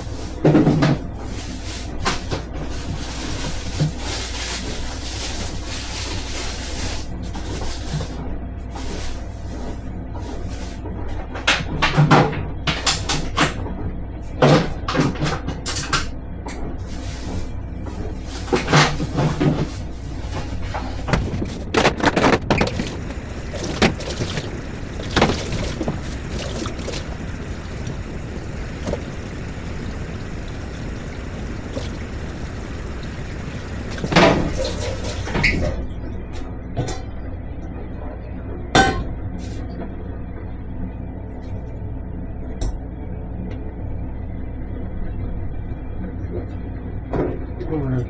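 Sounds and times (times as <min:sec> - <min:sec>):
steady low hum: 0:16.0 - 0:48.0
kitchen items clattering: 0:18.4 - 0:35.7.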